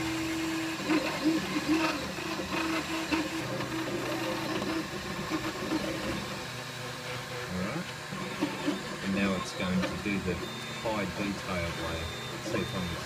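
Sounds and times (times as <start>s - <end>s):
steady mechanical hum: 0.0s - 13.0s
stepper motors singing: 8.3s - 13.0s.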